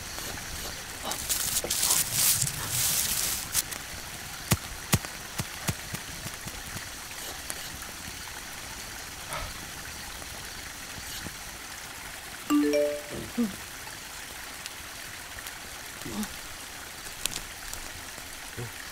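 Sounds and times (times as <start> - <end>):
steady hiss: 0.0 - 11.6.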